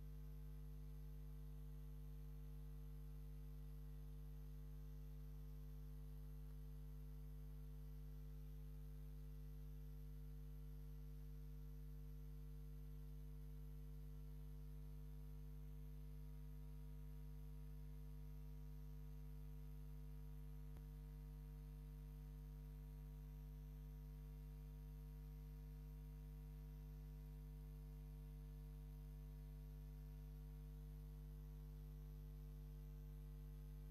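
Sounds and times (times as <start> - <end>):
steady low hum: 31.9 - 33.9.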